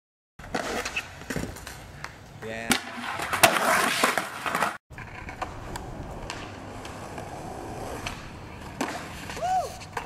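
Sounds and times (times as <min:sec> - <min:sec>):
skateboard wheels rolling on concrete: 0:00.4 - 0:10.0.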